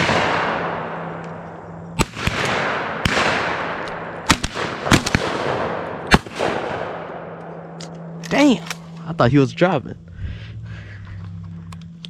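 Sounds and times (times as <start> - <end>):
shotgun shots with echo: 0.0 - 1.2, 2.0 - 7.4.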